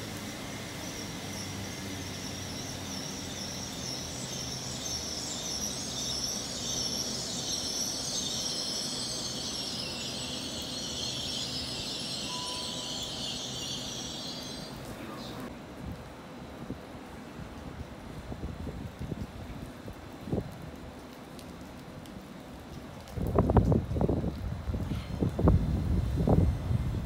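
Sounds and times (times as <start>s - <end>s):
train running past: 0.0s - 15.6s
low train hum: 0.0s - 21.0s, 22.3s - 27.0s
heavy rain hissing: 0.0s - 27.0s.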